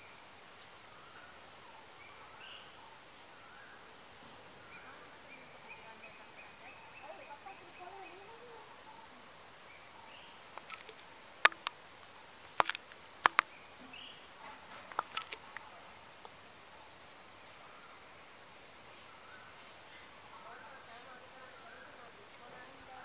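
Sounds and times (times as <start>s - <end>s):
high-pitched insect chorus: 0.0s - 23.0s
sharp clicks: 10.6s - 13.5s, 14.9s - 16.4s.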